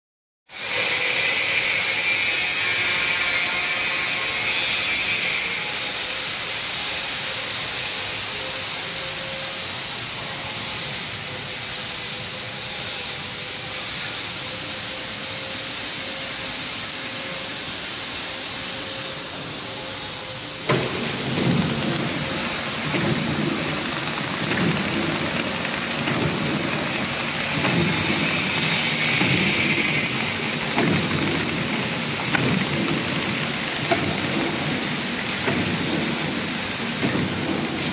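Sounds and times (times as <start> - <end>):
packing machine whirring and whining: 0.5 - 37.9
low rhythmic thumping: 20.7 - 37.9.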